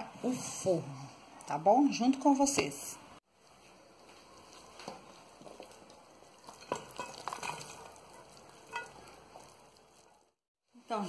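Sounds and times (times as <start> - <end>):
wet salad rustling and plopping: 3.4 - 10.4.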